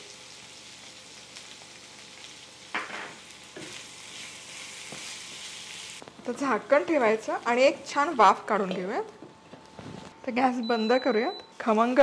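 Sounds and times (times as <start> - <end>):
potatoes sizzling in oil: 0.0 - 7.8.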